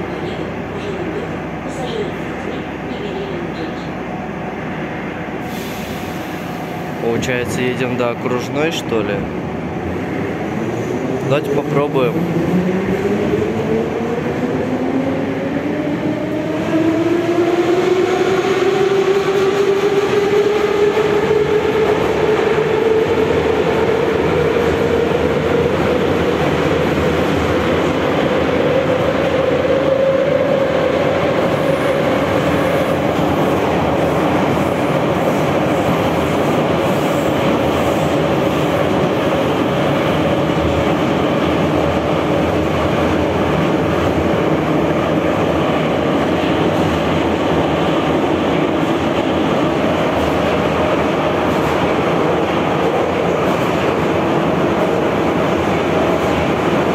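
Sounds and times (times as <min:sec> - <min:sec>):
train running noise: 0:00.0 - 0:56.9.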